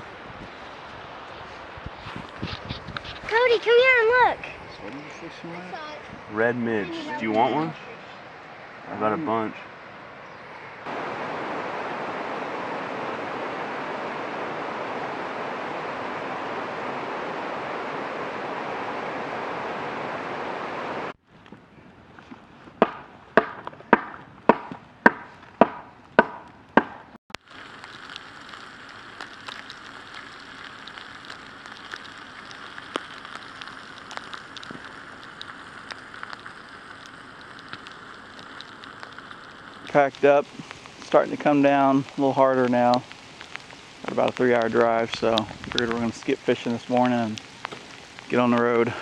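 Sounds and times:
pattering of wintry precipitation: 0.0s - 21.6s, 27.3s - 49.0s
campfire cracking: 0.0s - 49.0s
river water rushing over rocks: 10.9s - 21.1s.

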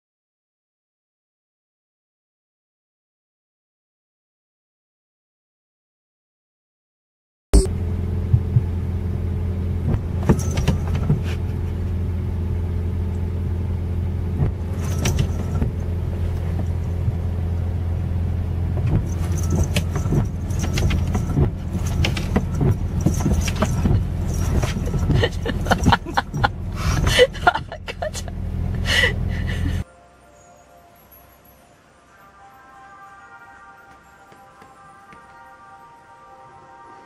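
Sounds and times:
car engine idling: 7.7s - 29.8s
cat collar bell jingling: 10.3s - 11.1s, 14.7s - 15.9s, 19.0s - 27.6s.

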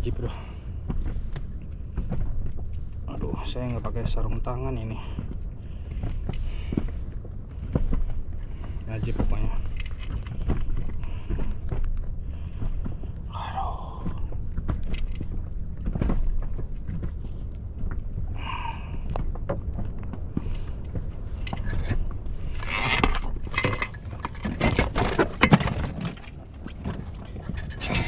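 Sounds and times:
steady low rumble: 0.0s - 28.0s
clinks and scrapes of handling: 21.4s - 28.0s.

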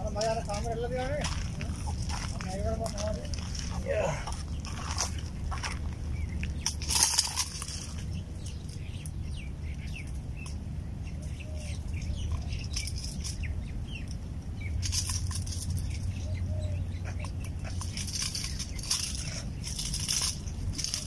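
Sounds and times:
faint bird chirps: 7.8s - 19.9s
rustling scrape: 14.8s - 16.2s, 17.6s - 21.0s.

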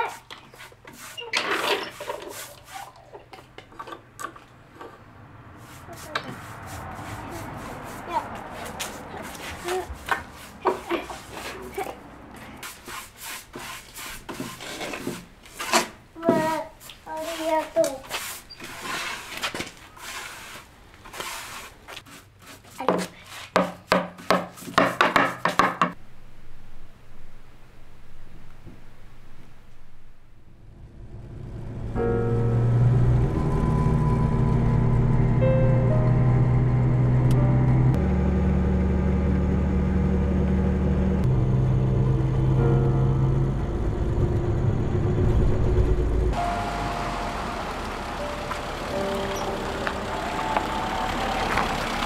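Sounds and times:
brush strokes on wood: 0.0s - 3.1s, 5.5s - 15.7s, 16.3s - 24.9s
paintbrush scrubbing on wood: 0.0s - 3.1s, 5.5s - 15.7s, 16.3s - 24.9s.

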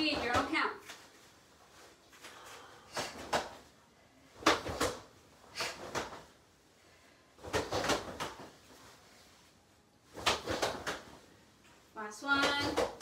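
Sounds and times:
bare feet on foam mats: 0.0s - 13.0s
cloth snapping from kicks: 10.1s - 11.2s.

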